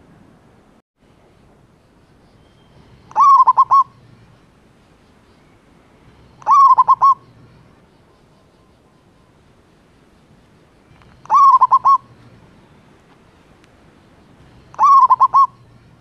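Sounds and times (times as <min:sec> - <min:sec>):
dove cooing: 0:03.1 - 0:04.0, 0:06.2 - 0:07.6, 0:10.9 - 0:12.4, 0:14.4 - 0:16.0.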